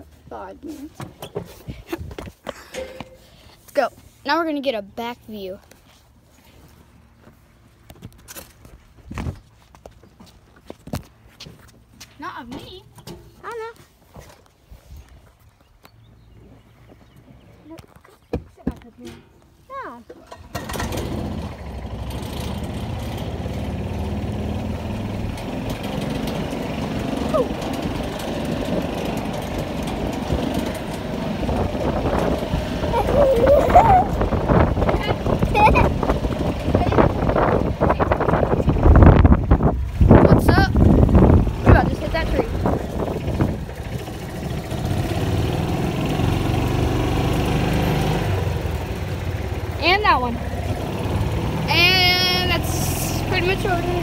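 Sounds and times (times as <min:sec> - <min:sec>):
golf cart engine running: 0:20.0 - 0:54.0
small engine chugging: 0:41.0 - 0:54.0.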